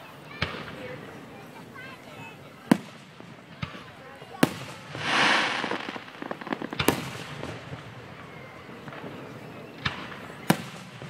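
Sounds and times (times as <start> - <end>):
firework small pops: 4.4 - 7.8
firework bangs: 4.5 - 8.2.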